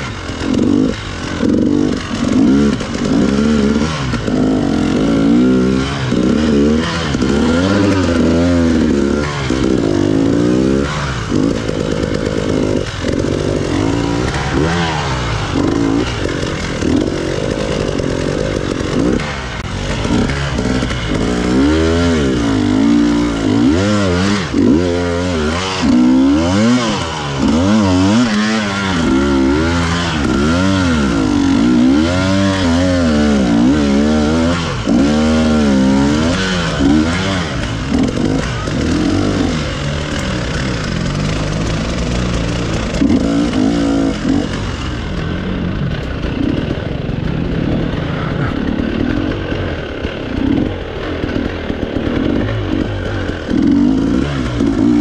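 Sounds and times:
motorcycle engine revving: 0.0s - 55.0s.

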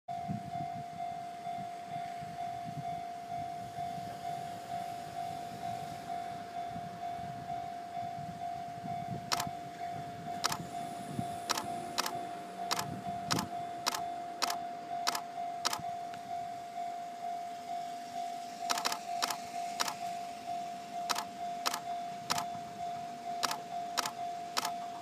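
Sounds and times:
level-crossing bell dinging: 0.1s - 25.0s
sharp clicks: 10.4s - 10.6s, 11.5s - 15.8s, 18.7s - 20.0s, 21.1s - 22.5s, 23.4s - 24.8s.

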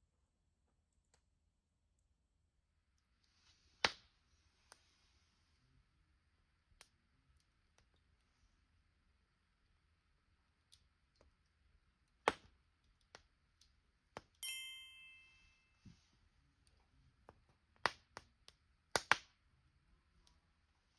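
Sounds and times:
bright chime: 14.4s - 15.8s.

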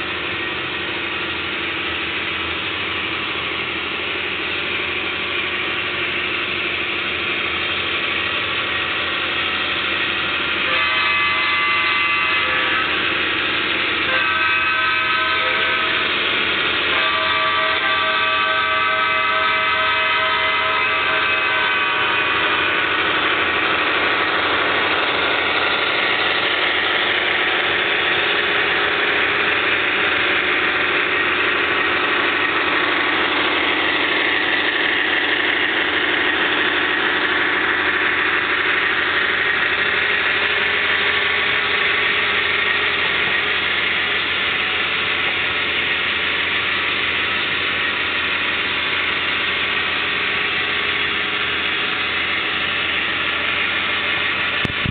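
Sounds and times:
model train wheels on track: 0.0s - 54.9s.

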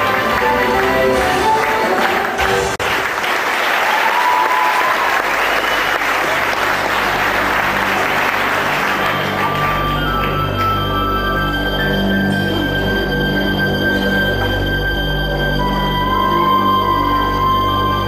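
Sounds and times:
dance music: 0.0s - 2.8s
audience applauding: 0.0s - 12.7s, 15.3s - 18.0s
low sustained music notes: 5.3s - 18.0s.

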